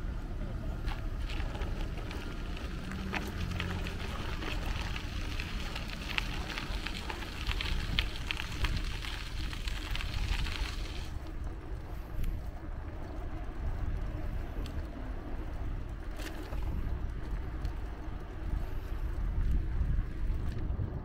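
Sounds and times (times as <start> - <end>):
wind rumbling on microphone: 0.0 - 21.0
light crackling ticks: 0.8 - 20.8.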